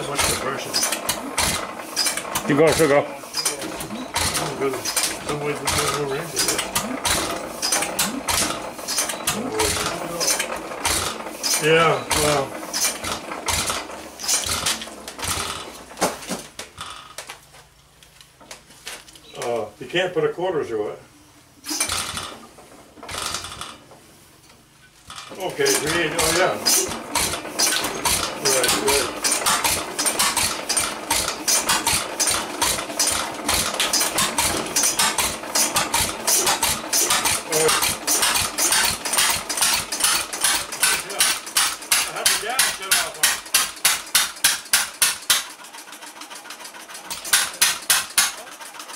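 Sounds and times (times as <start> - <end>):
engine clattering: 0.0 - 17.5, 21.6 - 48.9
mechanical clicks and knocks: 0.2 - 19.2, 24.5 - 45.6, 47.1 - 48.4.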